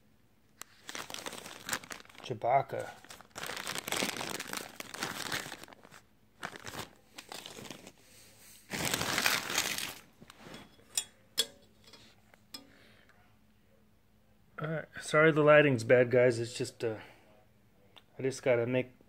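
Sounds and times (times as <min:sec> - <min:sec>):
plastic bag crinkling: 0:00.6 - 0:10.7.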